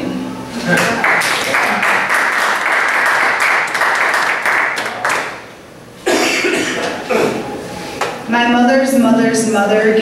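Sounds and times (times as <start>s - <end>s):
audience applauding: 0.7s - 5.5s.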